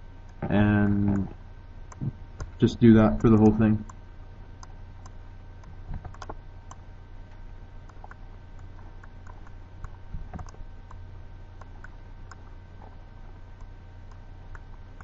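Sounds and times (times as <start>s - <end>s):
steady low hum: 0.0s - 15.0s
mouse and keyboard clicks: 5.0s - 6.4s, 7.9s - 10.6s.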